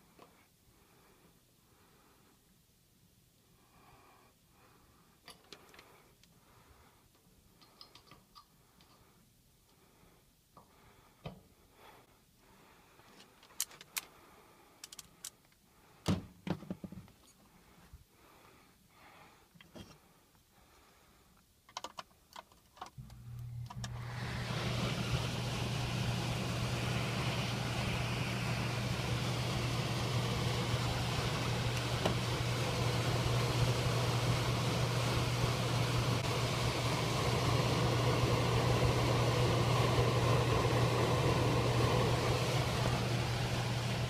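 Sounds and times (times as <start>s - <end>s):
blower motor humming: 23.0s - 44.0s.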